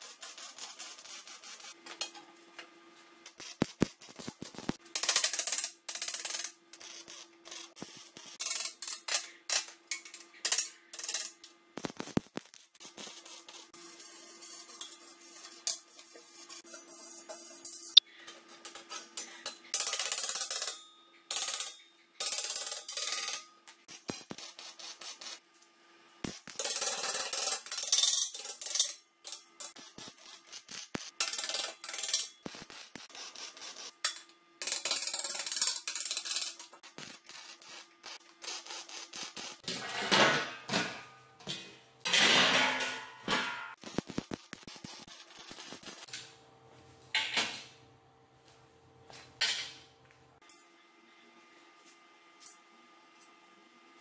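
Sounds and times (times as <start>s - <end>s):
welder crackling sizzle: 3.2s - 4.8s, 6.8s - 8.6s, 11.8s - 13.8s, 23.9s - 25.4s, 26.2s - 26.6s, 29.7s - 34.1s, 36.8s - 39.7s, 43.7s - 46.4s.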